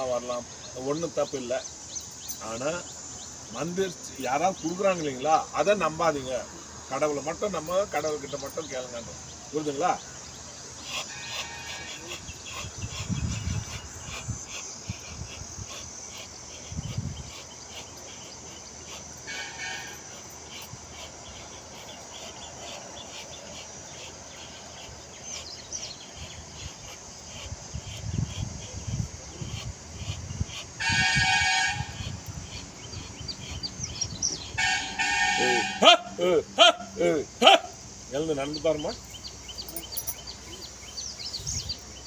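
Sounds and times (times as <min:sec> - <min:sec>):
bird chirps: 0:00.0 - 0:36.0, 0:36.6 - 0:42.0
insects chirping: 0:00.0 - 0:42.0
horn toot: 0:19.3 - 0:20.2, 0:30.8 - 0:32.2, 0:34.6 - 0:37.8.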